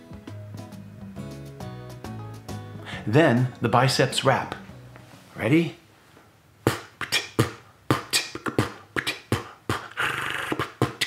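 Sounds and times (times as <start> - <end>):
beatboxed clicks and thumps: 6.6 - 11.0.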